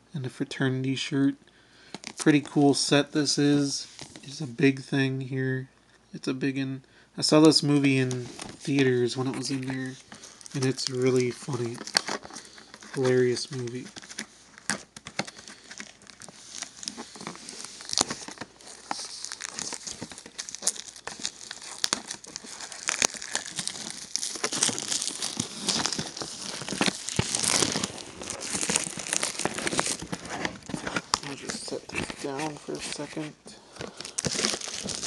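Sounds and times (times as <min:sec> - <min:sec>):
plastic packaging crinkling and tearing: 0:07.4 - 0:35.0.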